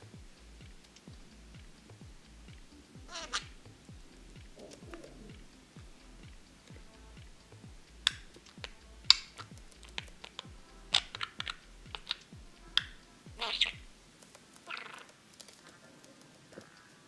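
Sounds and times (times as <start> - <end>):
budgerigar chirping: 3.0 - 6.6, 7.2 - 14.0, 14.7 - 15.1
quick sharp clicks and taps: 6.2 - 13.0.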